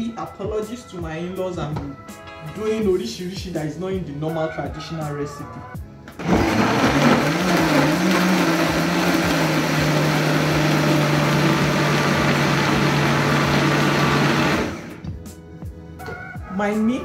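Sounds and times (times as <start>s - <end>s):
blender motor running: 6.2s - 15.1s.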